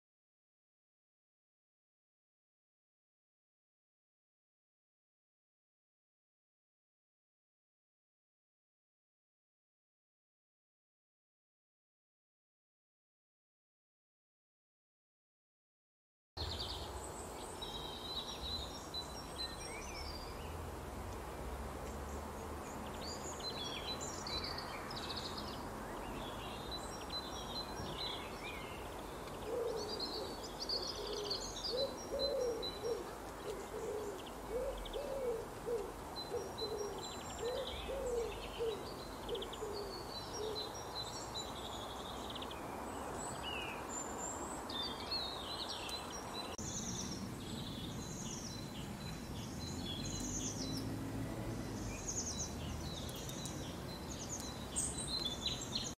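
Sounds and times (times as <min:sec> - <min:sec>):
small songbirds chirping: 0:16.4 - 0:56.0
low hooting bird call: 0:29.4 - 0:40.8.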